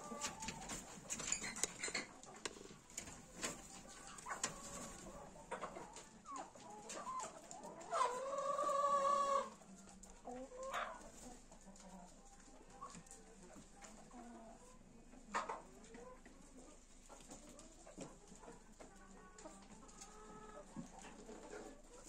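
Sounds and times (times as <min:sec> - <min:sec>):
chickens clucking: 0:00.0 - 0:22.0
long loud chicken call: 0:07.9 - 0:09.5.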